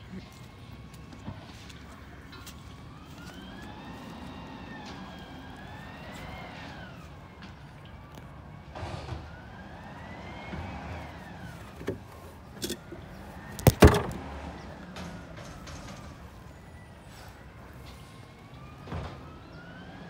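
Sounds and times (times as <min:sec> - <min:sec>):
siren wailing: 0:02.9 - 0:07.3, 0:09.2 - 0:11.6.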